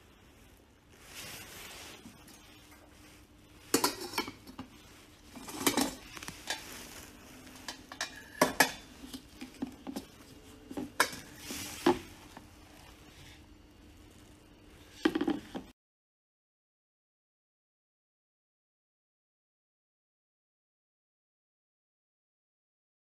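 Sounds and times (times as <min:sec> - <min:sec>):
metal pot parts clanking: 0:03.6 - 0:12.0.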